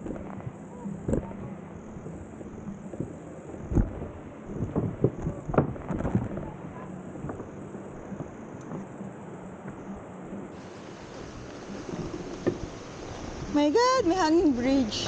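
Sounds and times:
bicycle rolling over wooden boards: 10.5s - 15.0s.

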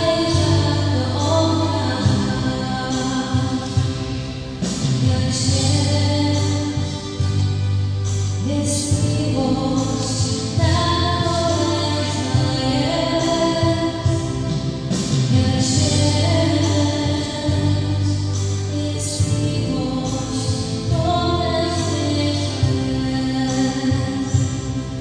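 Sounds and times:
low bass line: 0.0s - 25.0s.

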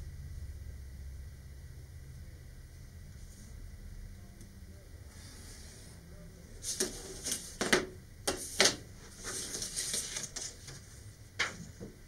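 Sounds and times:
paper rustling: 6.6s - 11.8s.

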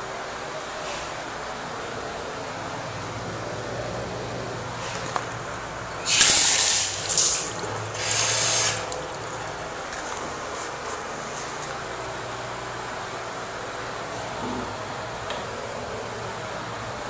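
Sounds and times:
faucet water spurting into sink: 6.1s - 9.6s.

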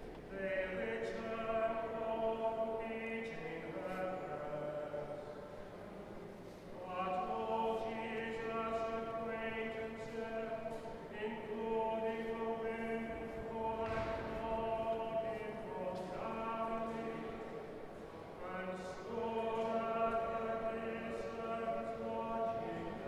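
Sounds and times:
choir singing chant-like music: 6.8s - 17.7s, 18.4s - 23.0s.

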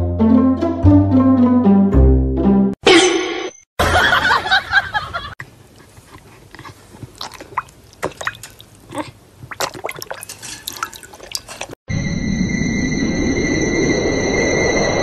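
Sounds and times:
dog lapping water: 5.7s - 11.8s.

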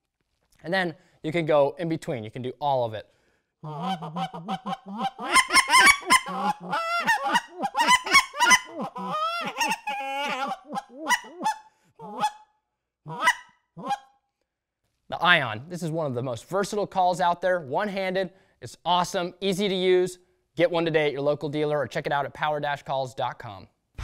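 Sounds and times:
goose call honks and clucks: 3.6s - 12.4s, 13.1s - 14.1s.

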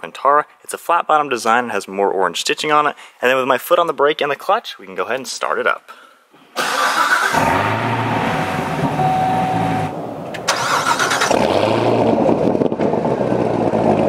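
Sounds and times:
car engine revving and idling: 7.3s - 14.0s.

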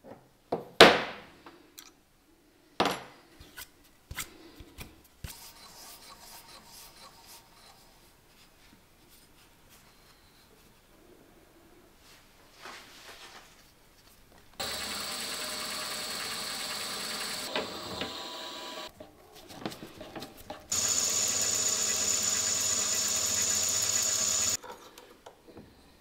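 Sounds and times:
milling machine motor whining: 14.6s - 18.9s, 20.7s - 24.6s.

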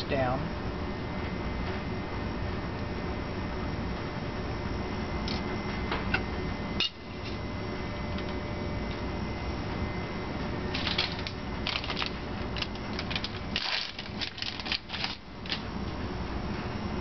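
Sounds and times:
fan humming: 0.0s - 17.0s
crackling rustling clicks: 10.7s - 16.0s.

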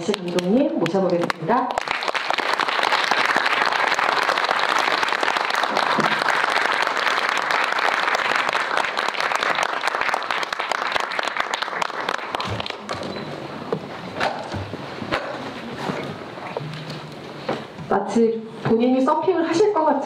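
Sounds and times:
audience applauding: 0.0s - 13.2s.

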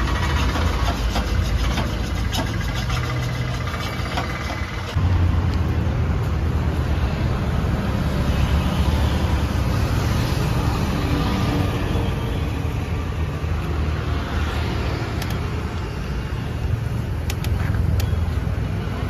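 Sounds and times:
hand tools clicking and tapping: 0.0s - 5.0s
road traffic rumble: 0.0s - 19.0s.

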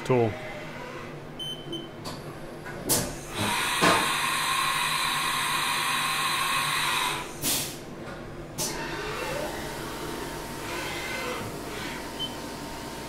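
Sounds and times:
steady pneumatic hiss: 2.9s - 7.8s.

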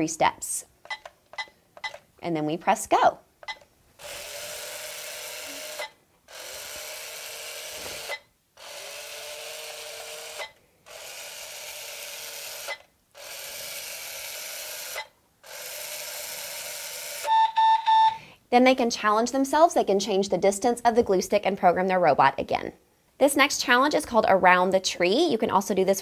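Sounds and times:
small gear motors whirring: 4.0s - 17.3s.

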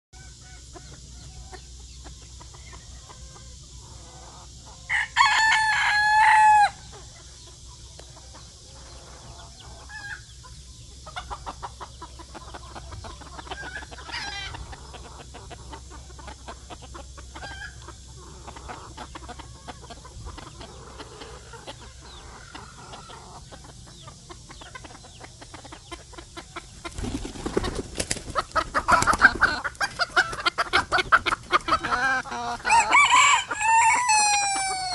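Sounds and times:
rooster crowing: 4.9s - 6.8s, 32.5s - 34.9s
soft clucking: 6.9s - 27.0s
wings flapping: 26.8s - 31.7s.

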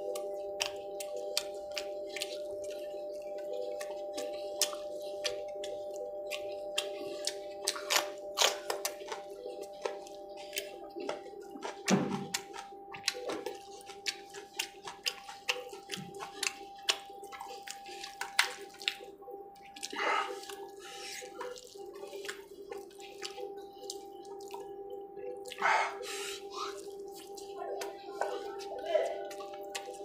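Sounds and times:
faint steady hum: 0.0s - 30.0s
wet chewing and lip-smacking: 0.0s - 30.0s
fingers tearing meat: 4.6s - 19.0s.

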